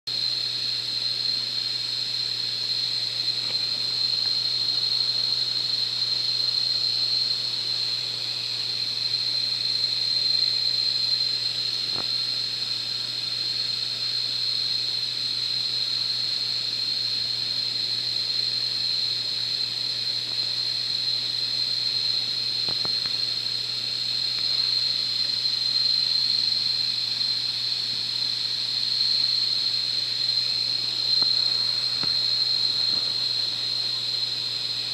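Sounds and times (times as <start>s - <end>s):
low hum and hiss: 0.1s - 34.9s
high-pitched whine: 19.3s - 34.9s.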